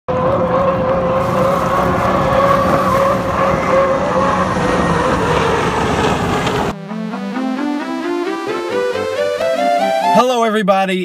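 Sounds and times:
rushing noise: 0.1 - 6.8
turbine engines high whine: 0.1 - 10.1.

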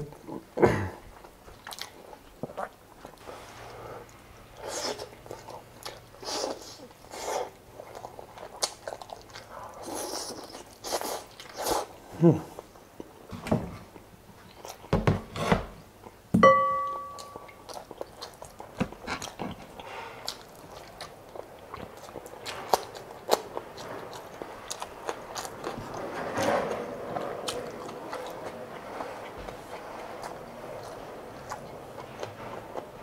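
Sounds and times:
person chewing: 1.1 - 13.2, 16.8 - 26.1, 26.7 - 33.0
sharp ringing clink: 16.4 - 17.5.

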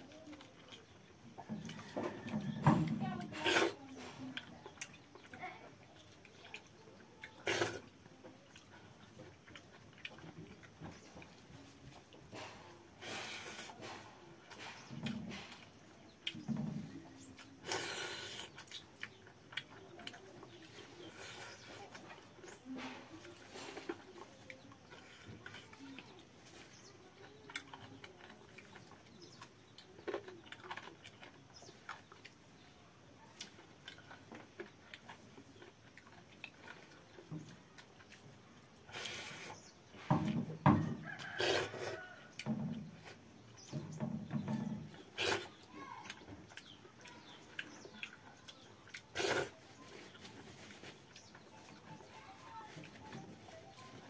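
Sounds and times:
wet eating sounds by hand: 3.2 - 40.0, 41.0 - 54.0
person chewing and lip-smacking: 8.4 - 11.4, 17.2 - 20.9, 45.1 - 49.5.

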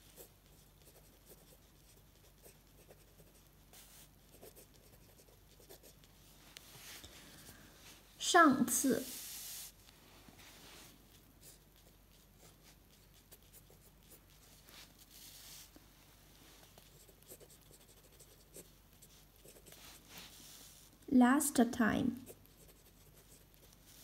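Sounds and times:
pen nib scratching on paper: 0.0 - 6.1, 11.1 - 14.4, 16.7 - 20.8, 22.2 - 24.0.

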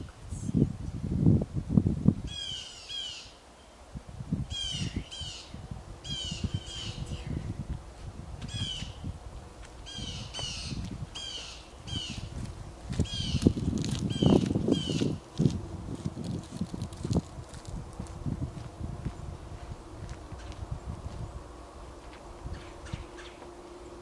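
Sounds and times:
low rumble: 4.1 - 24.0
bird harsh falling calls: 9.9 - 12.3, 14.1 - 15.2, 22.5 - 23.5.

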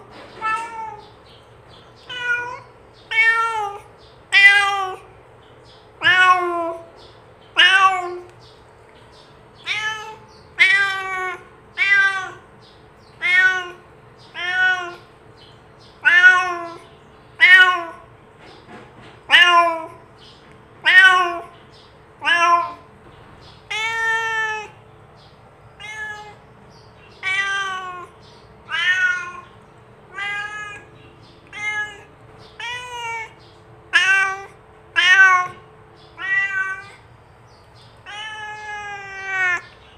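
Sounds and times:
cat meowing: 0.3 - 1.2, 2.0 - 5.1, 6.0 - 6.9, 7.6 - 8.4, 9.6 - 12.5, 13.1 - 15.1, 16.0 - 18.1, 19.3 - 20.0, 20.8 - 21.6, 22.2 - 22.9, 23.6 - 24.8, 25.8 - 26.5, 27.1 - 37.1, 38.0 - 39.8.

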